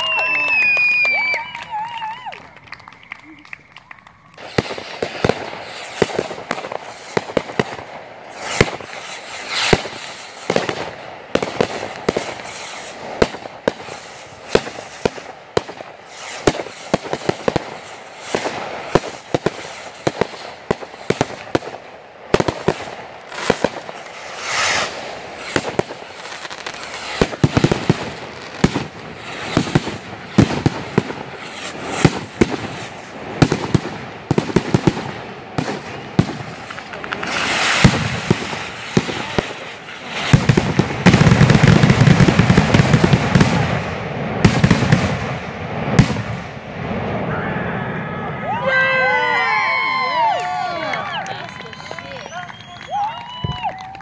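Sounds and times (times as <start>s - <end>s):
fireworks barrage bangs and crackles: 0.0s - 47.4s, 49.3s - 54.0s
fireworks hissing: 4.2s - 43.6s.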